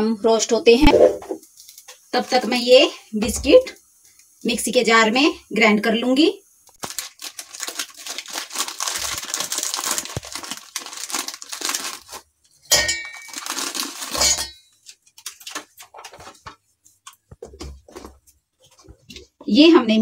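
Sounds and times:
plastic wrapper crinkling: 1.5 - 2.7, 6.7 - 12.3, 13.0 - 17.3
biscuits clinking against steel jar: 12.7 - 15.9.

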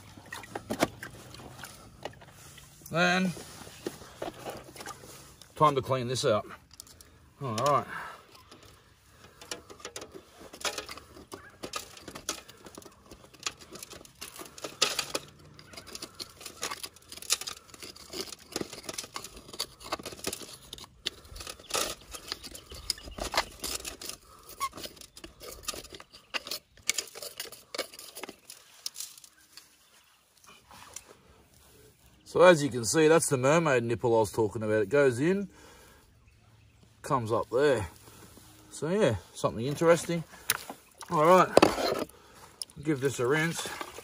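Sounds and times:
metal pick scraping glass: 6.5 - 29.7, 39.8 - 44.0.

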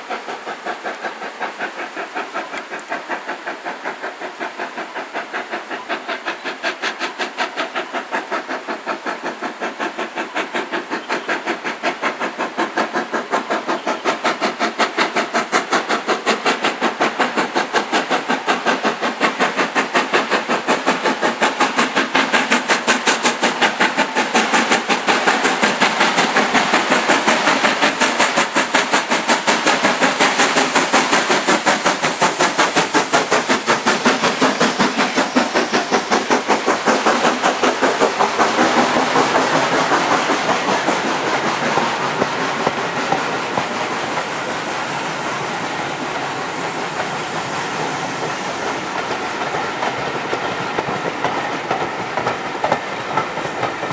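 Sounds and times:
steam locomotive chimney exhaust: 0.0 - 53.9.

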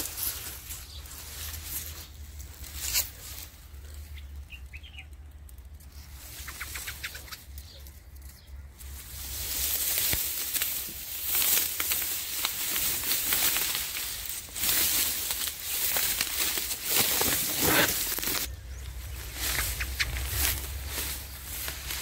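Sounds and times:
dry reeds rustling: 0.0 - 22.0.

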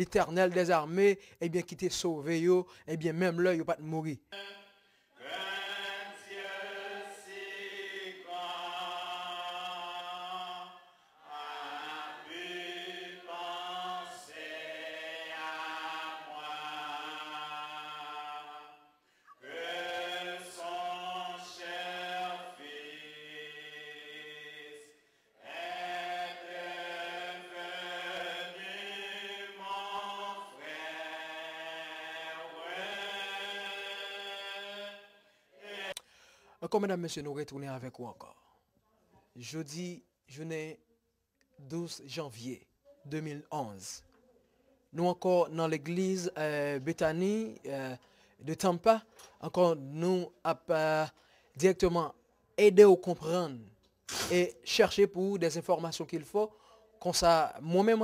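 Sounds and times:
group singing a slow hymn: 4.3 - 36.4.

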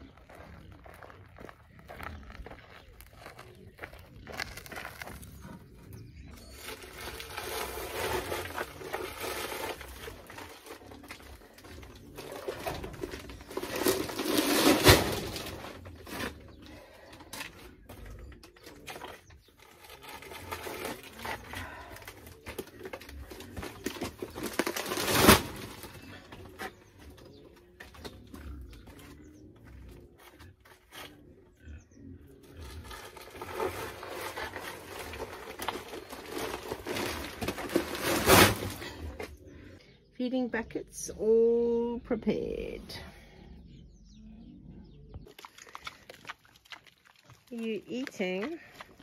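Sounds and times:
rustling and scraping: 0.0 - 31.3, 32.4 - 39.7.

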